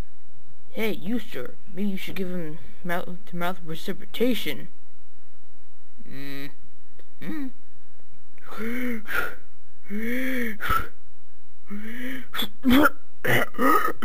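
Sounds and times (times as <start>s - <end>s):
person gasping and huffing: 8.4s - 11.0s, 11.7s - 12.4s.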